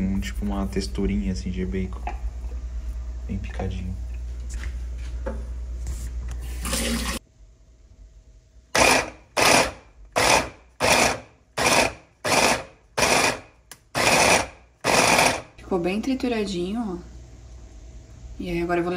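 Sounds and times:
electric food chopper grinding: 8.8 - 15.6.

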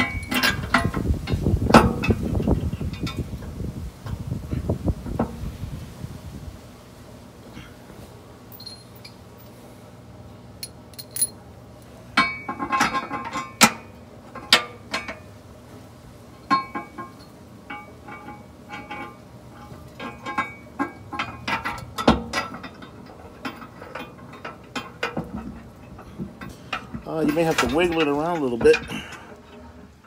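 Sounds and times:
metal bolts clinking on steel: 0.0 - 2.2, 8.5 - 9.2, 10.6 - 11.4, 12.2 - 15.2, 16.5 - 29.6.

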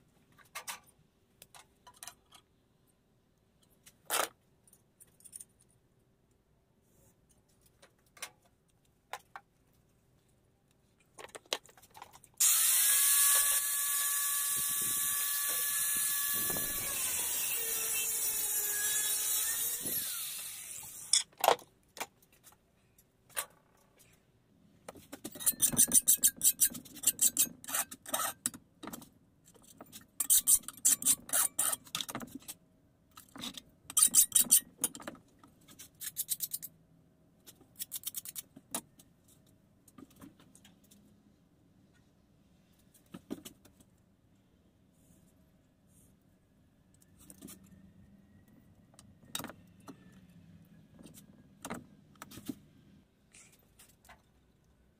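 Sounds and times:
angle grinder cutting steel: 12.4 - 21.2.

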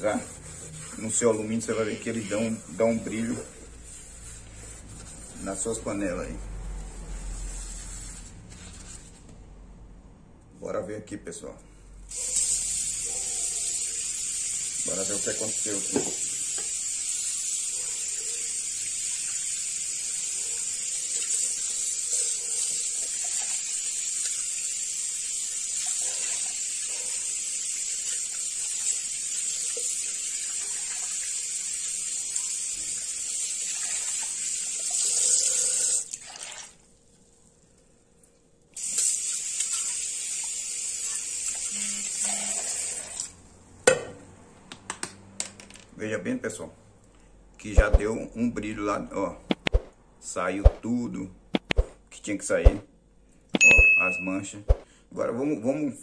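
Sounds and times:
water running from a tap: 12.1 - 36.8, 38.8 - 43.3.

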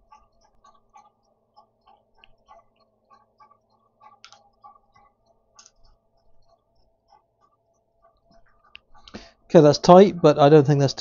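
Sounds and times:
sharp clicks: 3.5 - 4.8, 5.5 - 6.0.

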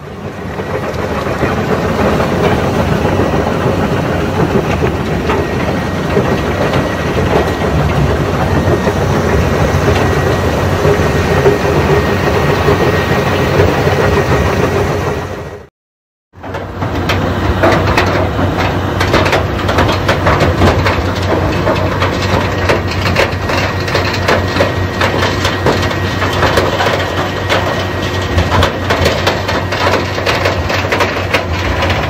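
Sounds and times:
rock crusher machinery din: 0.0 - 15.7, 16.4 - 32.0.

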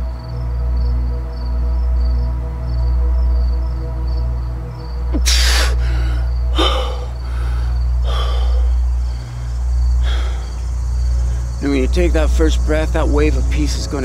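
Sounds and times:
steady low drone: 0.0 - 14.0
faint regular chirps: 4.7 - 14.0
man breathing deeply: 5.1 - 11.6.

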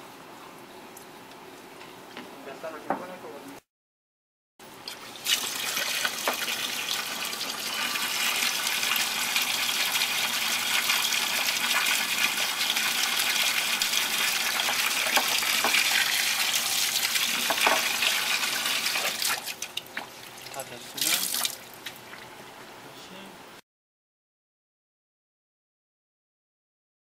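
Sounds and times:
tap water splashing into container: 4.9 - 7.1, 12.7 - 22.3.

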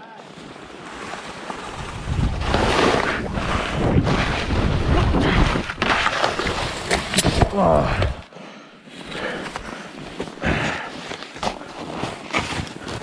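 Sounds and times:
skis on snow: 0.3 - 7.3
wind rushing over microphone: 1.6 - 5.9.

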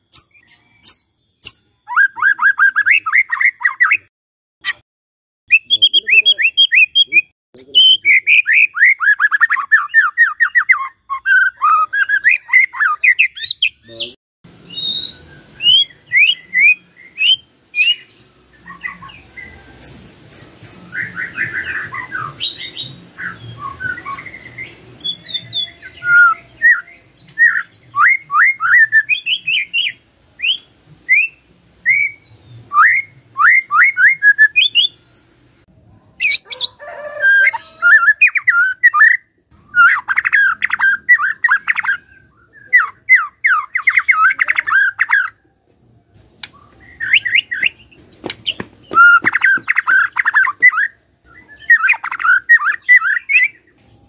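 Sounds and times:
bird singing whistled notes: 0.0 - 4.1, 5.5 - 35.5, 36.2 - 45.4, 46.4 - 53.7
bird rapid chattering: 46.4 - 50.9.

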